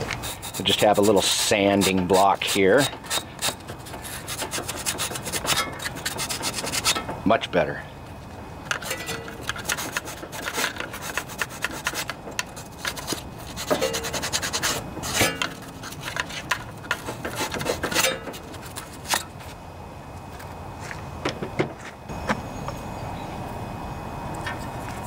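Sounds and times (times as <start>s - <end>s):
sanding block rasping on metal: 0.0s - 7.0s, 9.5s - 18.6s.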